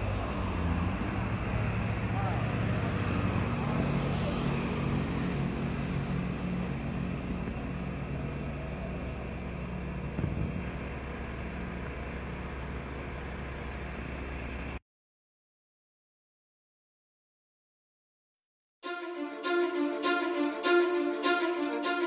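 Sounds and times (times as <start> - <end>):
engine idling: 5.8 - 14.8.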